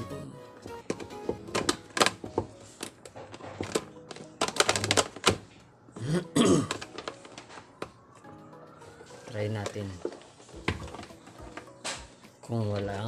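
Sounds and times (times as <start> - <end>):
soft background music: 0.0 - 13.0
plastic clicks and knocks: 0.7 - 5.5.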